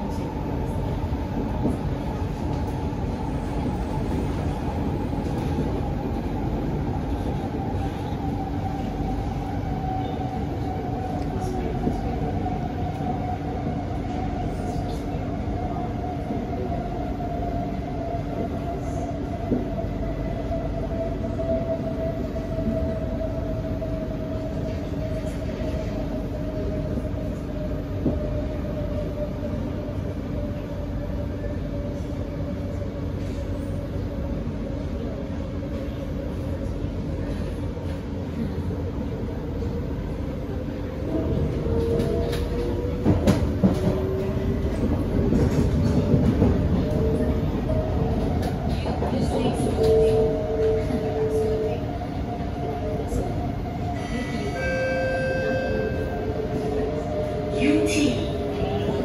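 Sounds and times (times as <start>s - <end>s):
train wheels rumbling: 0.0s - 59.0s.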